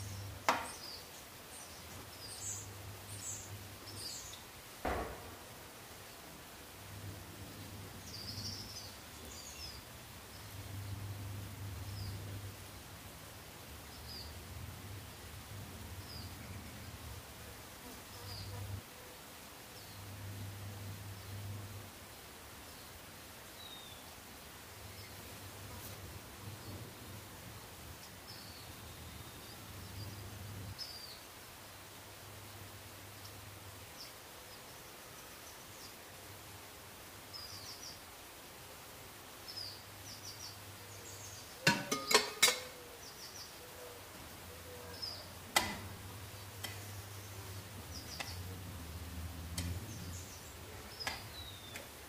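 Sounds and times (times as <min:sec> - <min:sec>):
small birds chirping: 0:00.0 - 0:06.2, 0:07.4 - 0:12.9, 0:13.8 - 0:17.3, 0:19.7 - 0:31.4, 0:37.2 - 0:38.2, 0:39.4 - 0:52.0
background hiss: 0:00.0 - 0:52.0
steady low hum: 0:09.9 - 0:13.1, 0:19.9 - 0:22.2
low hum: 0:20.0 - 0:22.0.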